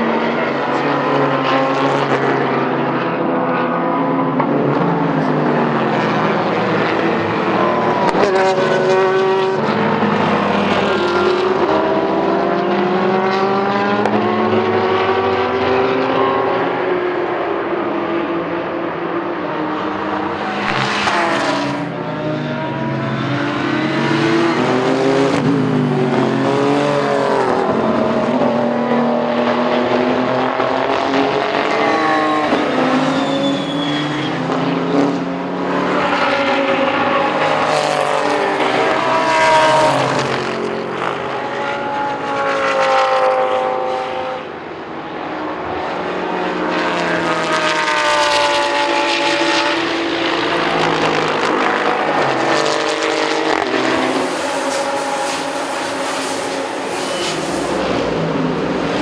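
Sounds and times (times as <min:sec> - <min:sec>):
race cars passing at speed: 0:00.0 - 0:59.0.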